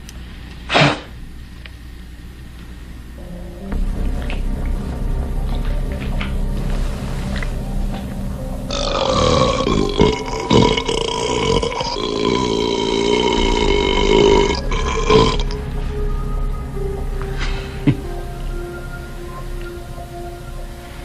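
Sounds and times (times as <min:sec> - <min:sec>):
man belching loudly: 0:08.7 - 0:15.6.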